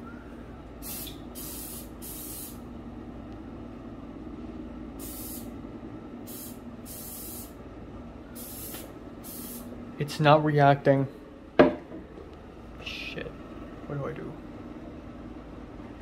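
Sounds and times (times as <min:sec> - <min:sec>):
steady low hum: 0:00.0 - 0:16.0
aerosol spray hissing: 0:00.8 - 0:02.6, 0:05.0 - 0:05.5, 0:06.3 - 0:07.6, 0:08.4 - 0:09.7.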